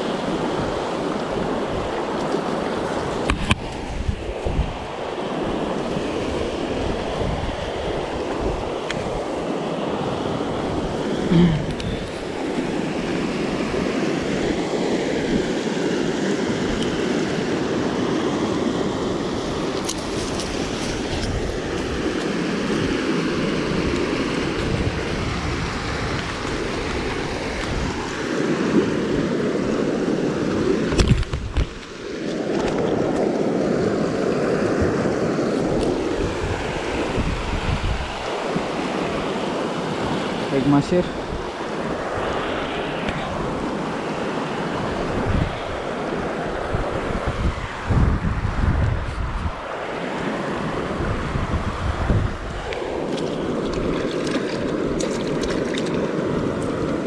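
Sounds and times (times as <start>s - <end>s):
wind buffeting microphone: 0.0s - 15.6s, 16.5s - 57.0s.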